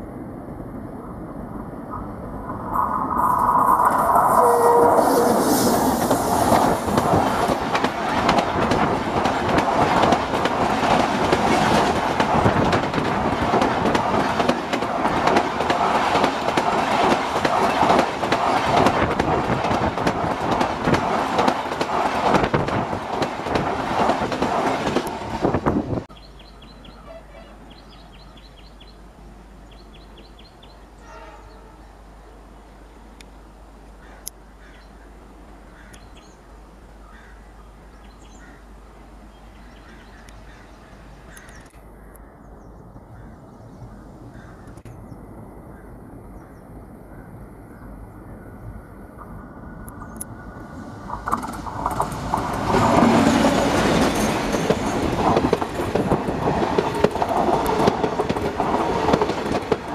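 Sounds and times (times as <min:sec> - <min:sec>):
passenger train passing: 0:00.0 - 0:37.1, 0:37.7 - 0:59.9
train wheel clatter: 0:03.5 - 0:26.1, 0:51.0 - 0:59.9.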